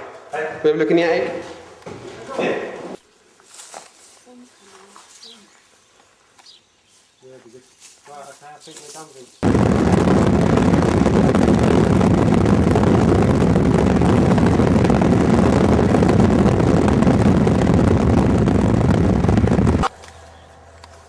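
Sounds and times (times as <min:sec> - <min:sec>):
wind on microphone: 0:09.4 - 0:19.9.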